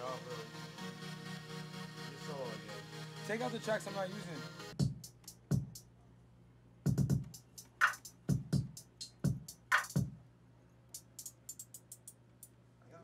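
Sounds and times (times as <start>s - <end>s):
deep drum machine kicks: 4.8s - 5.8s, 6.9s - 10.2s
hi-hat ticks: 4.8s - 5.9s, 6.9s - 10.2s, 10.9s - 12.6s.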